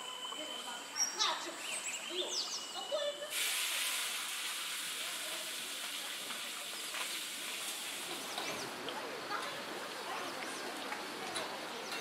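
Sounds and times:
bird chirps: 0:00.1 - 0:03.3
steady hiss: 0:03.2 - 0:08.8.

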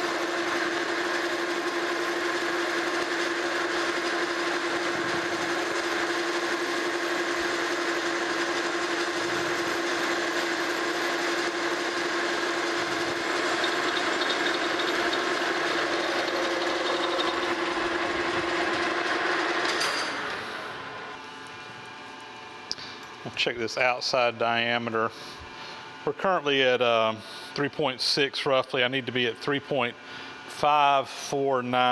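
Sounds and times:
cutting tool cutting metal: 0:00.0 - 0:20.4
metal lathe humming: 0:00.0 - 0:21.6.

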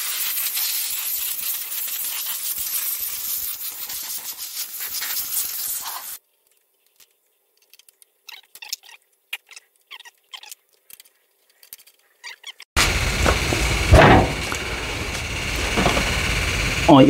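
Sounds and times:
compressed air hissing from blow gun: 0:00.0 - 0:06.2
tools clicking and tapping on engine: 0:12.8 - 0:16.7.

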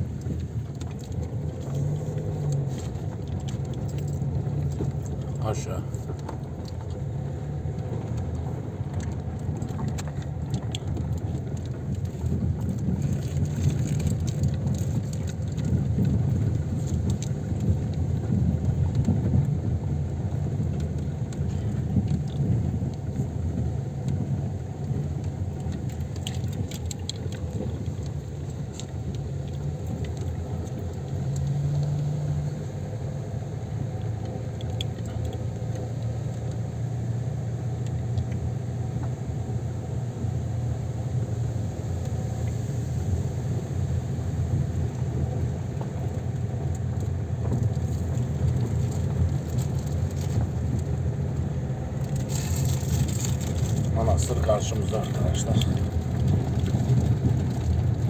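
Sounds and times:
car engine and road noise: 0:00.0 - 0:58.0
light rattles: 0:00.2 - 0:23.2.

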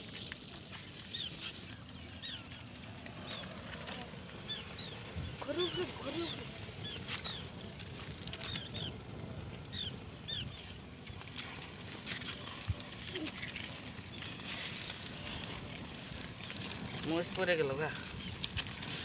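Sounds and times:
wood fire crackling: 0:00.0 - 0:19.0
bird chirping: 0:01.0 - 0:11.2.

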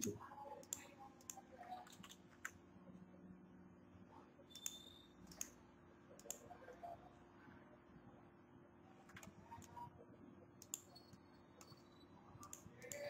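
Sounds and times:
mouse and keyboard clicks: 0:10.6 - 0:11.8.

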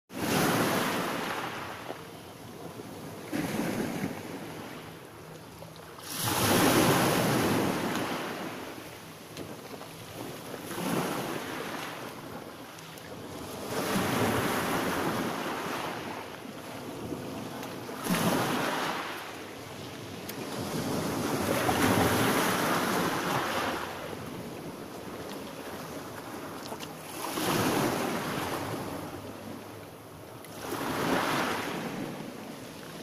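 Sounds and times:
waves washing up a pebble beach: 0:06.0 - 0:08.5.

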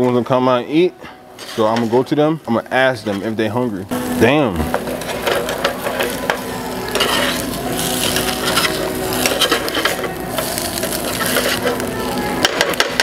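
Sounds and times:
food sizzling in a pan: 0:01.3 - 0:13.0
utensil scraping a pan: 0:01.4 - 0:02.1, 0:04.6 - 0:11.8.

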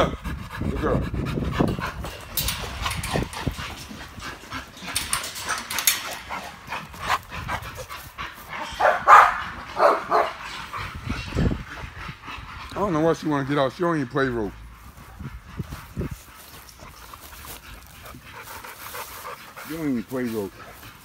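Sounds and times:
dogs barking: 0:00.0 - 0:13.5.

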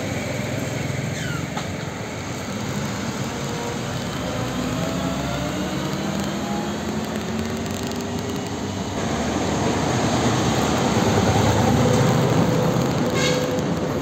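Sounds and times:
tanker truck engine passing: 0:00.0 - 0:14.0
truck tyres on road: 0:00.0 - 0:14.0.

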